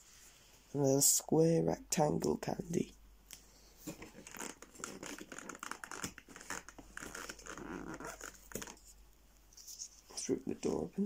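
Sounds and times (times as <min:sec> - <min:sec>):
packaging crinkling and rustling: 0:03.9 - 0:08.8.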